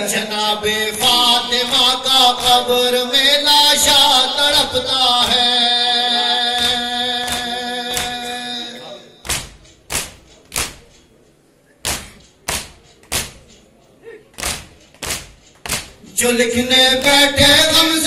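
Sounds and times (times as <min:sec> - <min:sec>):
men singing a long note: 0:00.0 - 0:09.0
chest-beating thumps: 0:09.2 - 0:11.2, 0:11.8 - 0:13.7, 0:14.4 - 0:17.9.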